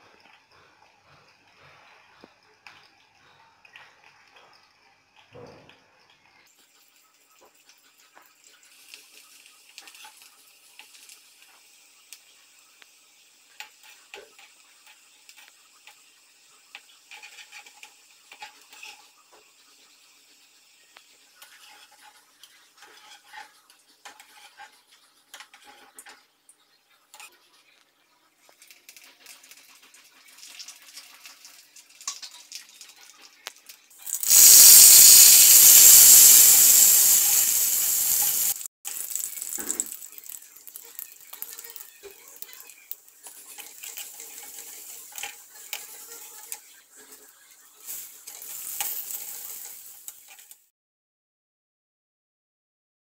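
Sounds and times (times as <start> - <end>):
food frying in hot oil: 3.7 - 50.7
loud sizzle: 6.7 - 22.9, 34.0 - 50.7.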